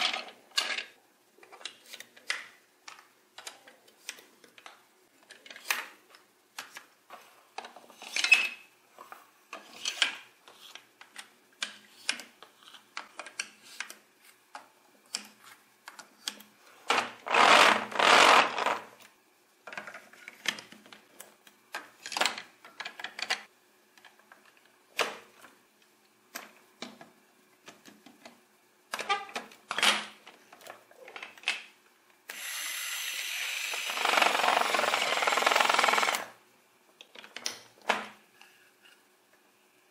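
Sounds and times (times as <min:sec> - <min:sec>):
plastic toy bricks clicking and snapping: 0:01.5 - 0:05.9.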